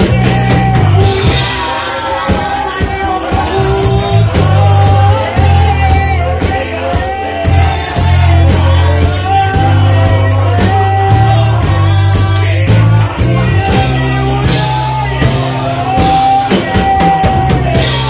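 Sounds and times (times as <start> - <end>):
band playing worship music: 0.0 - 18.0
people singing into microphones: 0.0 - 18.0.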